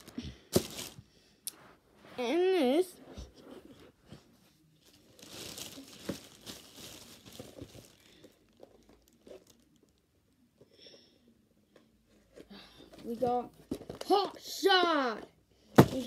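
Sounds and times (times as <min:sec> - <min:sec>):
plastic bag rustling: 0:00.0 - 0:01.1, 0:04.8 - 0:10.0.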